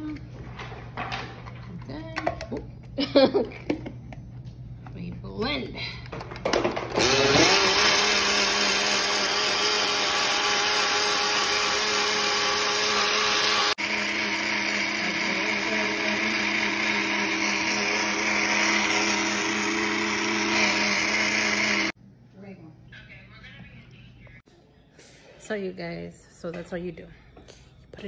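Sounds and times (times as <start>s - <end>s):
blender motor whirring: 6.6s - 22.0s.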